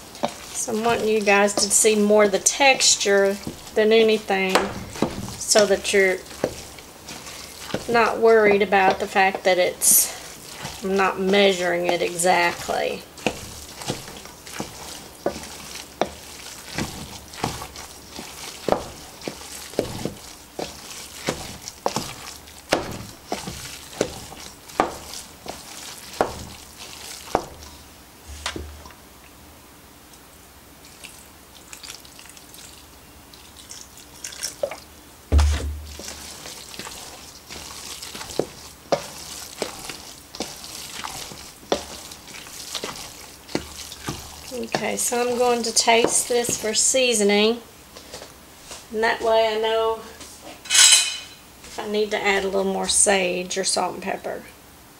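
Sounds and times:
spoon stirring wet mixture: 0.0 - 29.4, 30.1 - 53.5
dull thump: 28.3 - 28.9, 35.3 - 36.2.

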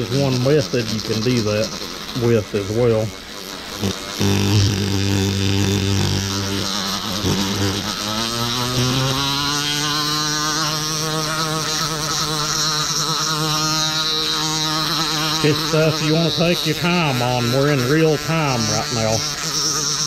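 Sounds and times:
sandpaper hissing on metal: 0.0 - 8.1
rotary tool motor whining: 0.0 - 20.0.

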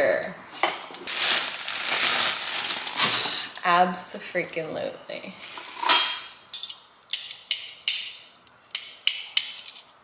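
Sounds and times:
utensils clinking in metal holder: 5.8 - 8.2, 8.8 - 10.0.

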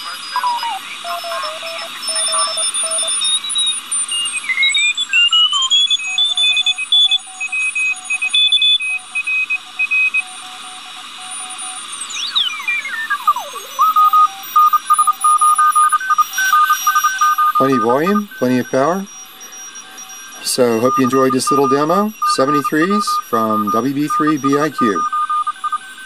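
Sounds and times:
radio hiss: 0.0 - 3.4, 12.6 - 26.0
morse code beeps: 0.0 - 26.0
sliding radio tuning whistle: 11.2 - 26.0.

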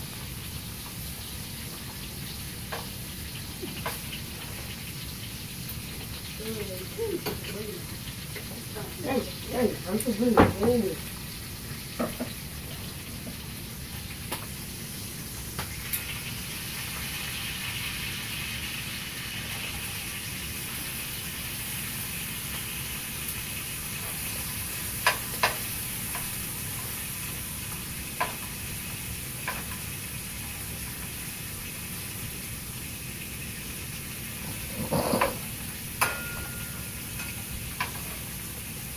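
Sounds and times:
food sizzling in a frying pan: 0.0 - 38.9.

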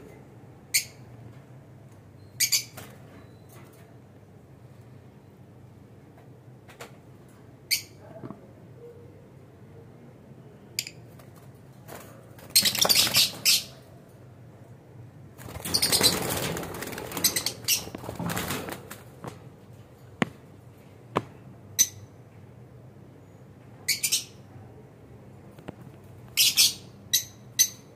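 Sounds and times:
wings flapping and rustling: 11.1 - 13.8, 15.3 - 19.9
birds chirping: 12.5 - 13.9, 17.1 - 18.0.

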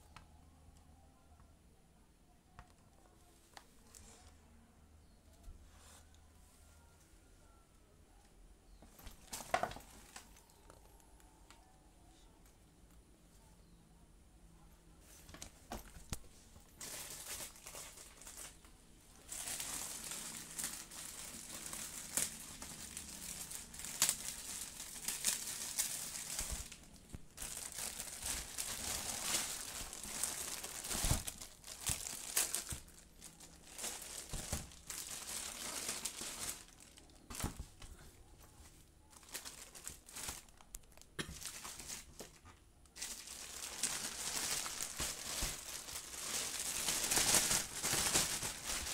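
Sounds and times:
plastic packaging crinkling: 9.0 - 11.0, 15.4 - 37.6, 39.1 - 48.9.

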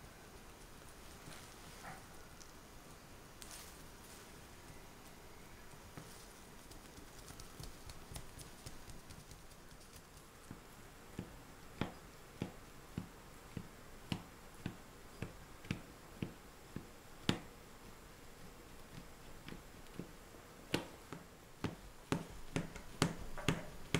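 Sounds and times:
hands pressing dough ticking: 5.9 - 23.9
fork tapping into dough: 20.7 - 23.9.

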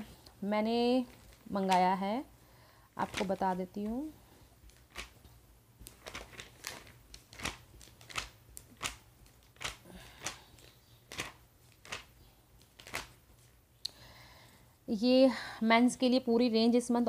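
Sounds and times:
paper pages flicking: 3.0 - 3.5, 4.6 - 13.5.

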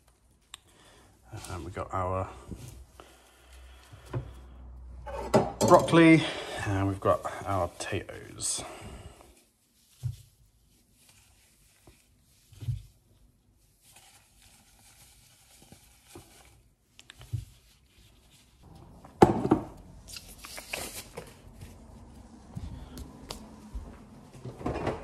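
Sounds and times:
rubber glove pulled off rustling: 9.3 - 18.7, 20.0 - 23.8.

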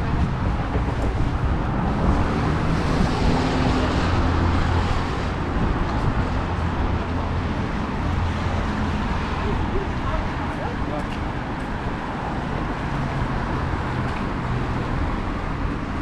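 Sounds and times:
steady traffic noise: 0.0 - 16.0
vehicle passing: 1.2 - 10.9.

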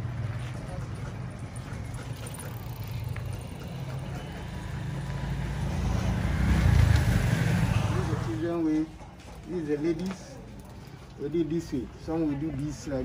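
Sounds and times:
vehicle engine rumbling: 0.0 - 12.1.

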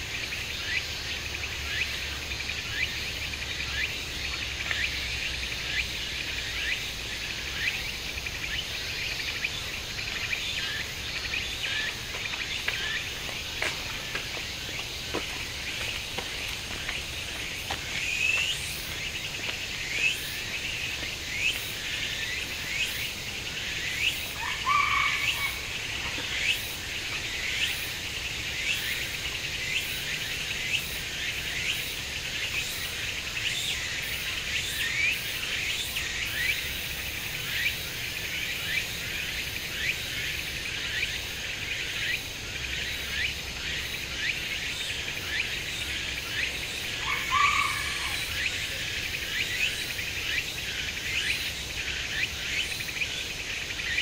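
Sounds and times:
insect chorus: 0.0 - 54.0
small birds chirping: 40.8 - 54.0.

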